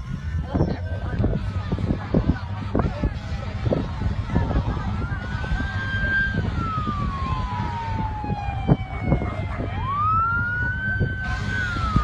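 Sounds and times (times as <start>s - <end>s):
low engine rumble: 0.0s - 12.0s
emergency siren wailing: 4.4s - 12.0s.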